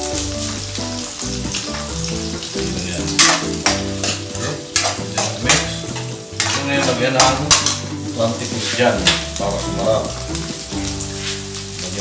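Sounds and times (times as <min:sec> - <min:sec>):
food sizzling in a wok: 0:00.0 - 0:12.0
metal spoon scraping a wok: 0:03.1 - 0:07.9.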